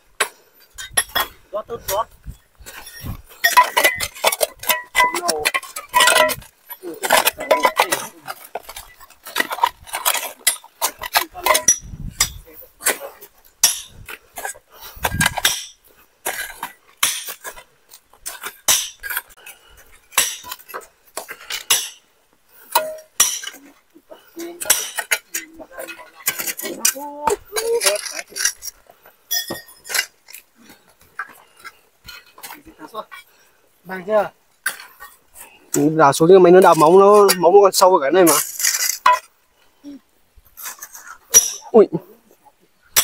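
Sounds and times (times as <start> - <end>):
metal tools striking stony soil: 0.2 - 17.6, 18.2 - 19.5, 20.1 - 22.1, 22.7 - 23.7, 24.4 - 30.4, 34.6 - 39.3, 40.6 - 41.9.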